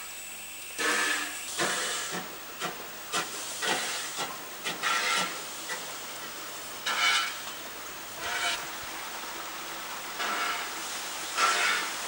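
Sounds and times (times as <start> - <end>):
steam hisses: 0.0 - 12.0
steam locomotive chuffing: 0.8 - 6.0, 10.1 - 12.0.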